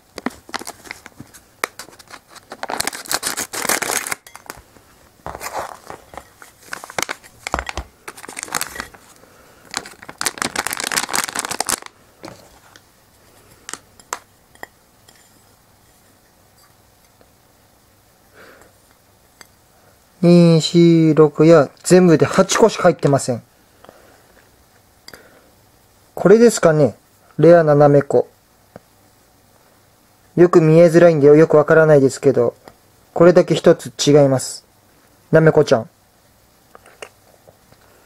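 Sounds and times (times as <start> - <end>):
plastic wrapper crinkling and tearing: 0.1 - 4.6, 5.3 - 12.8, 13.6 - 14.2.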